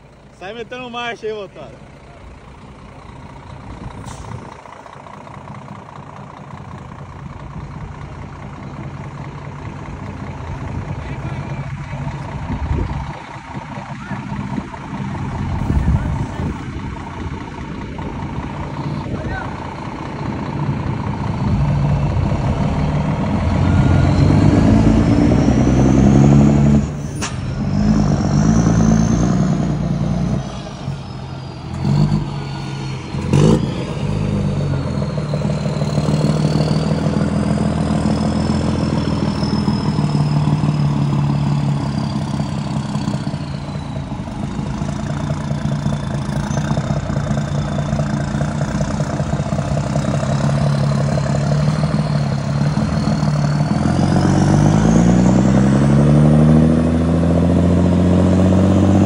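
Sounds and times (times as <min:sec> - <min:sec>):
truck diesel engine accelerating: 0:00.0 - 0:59.0
thin high whistle: 0:23.6 - 0:24.5, 0:39.0 - 0:40.9.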